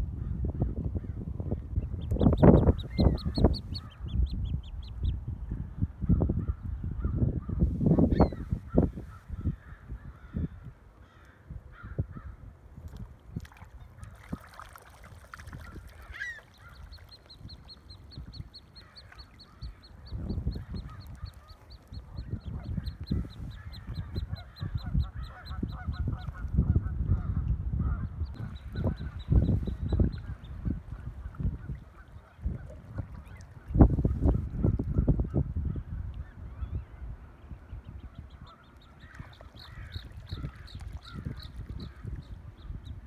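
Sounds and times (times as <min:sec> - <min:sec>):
wind buffeting microphone: 0:00.0 - 0:43.0
waterfowl calls: 0:15.5 - 0:26.5.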